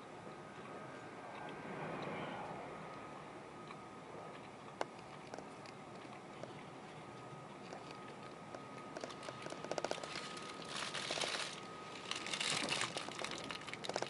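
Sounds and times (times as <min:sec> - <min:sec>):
faint steady whine: 0:00.0 - 0:14.0
crinkling and crackling: 0:07.6 - 0:14.0.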